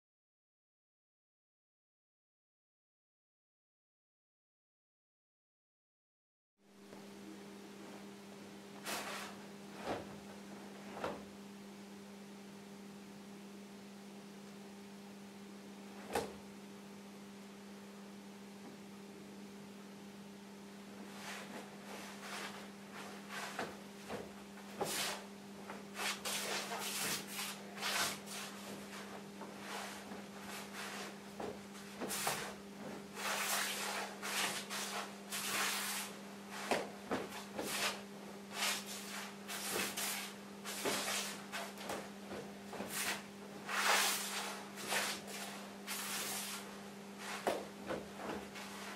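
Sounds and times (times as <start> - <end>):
steady electrical hum: 6.6 - 48.9
cloth swishing and rustling: 21.0 - 48.9.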